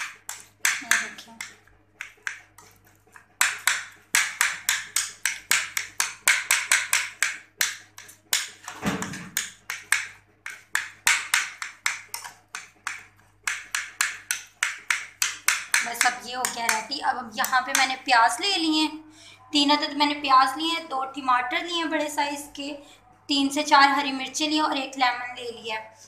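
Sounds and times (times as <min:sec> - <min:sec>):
knife tapping on ceramic plate: 0:00.0 - 0:18.0.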